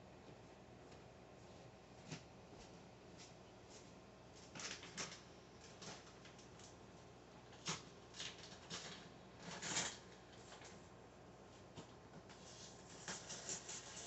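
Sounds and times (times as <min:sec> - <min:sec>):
scratchy rustles: 0:11.6 - 0:14.0.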